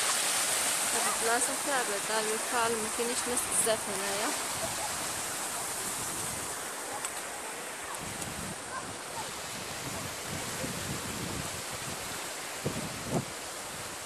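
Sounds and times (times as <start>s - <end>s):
wind buffeting microphone: 8.0s - 14.0s.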